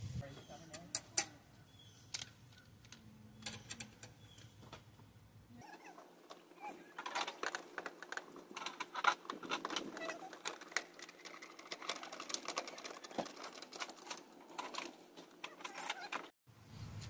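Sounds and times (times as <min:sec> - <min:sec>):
wire connectors clicking and rattling: 0:05.8 - 0:16.3.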